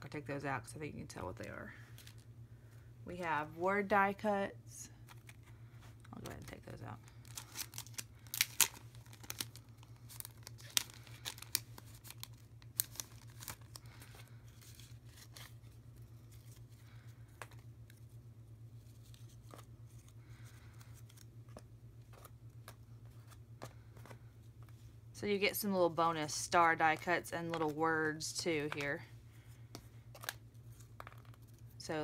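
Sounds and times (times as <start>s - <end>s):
plastic bag crinkling: 6.0s - 18.0s
cardstock pieces tapping and rustling: 29.7s - 31.6s.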